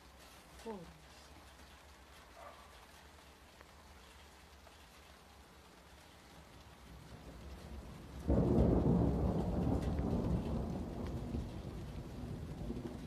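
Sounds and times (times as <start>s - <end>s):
thunder rumble and peal: 6.9s - 13.0s.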